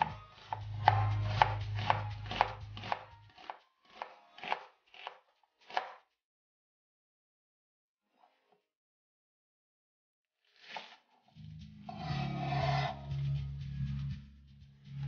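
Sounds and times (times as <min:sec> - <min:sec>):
knife chopping onion on plastic board: 0:00.0 - 0:06.0.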